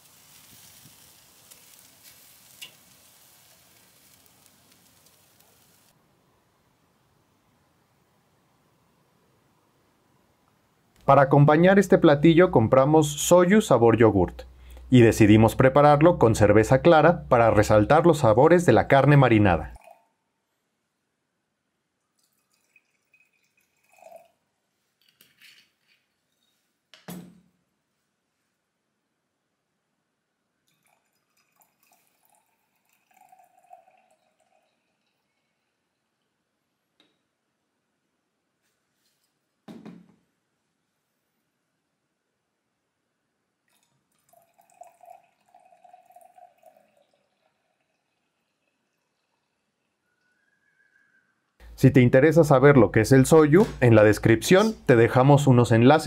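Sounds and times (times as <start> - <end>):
beer pouring into a glass: 0.0 - 6.0, 11.3 - 20.0, 22.2 - 24.5, 30.7 - 36.1, 43.7 - 50.3
liquid dripping: 0.0 - 6.0, 14.4 - 20.0, 22.0 - 24.4, 30.6 - 36.4, 43.7 - 51.9.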